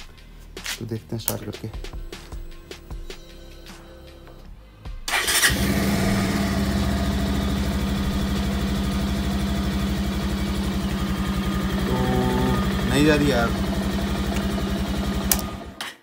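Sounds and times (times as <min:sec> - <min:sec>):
motorcycle engine starting and idling: 0:05.1 - 0:16.0.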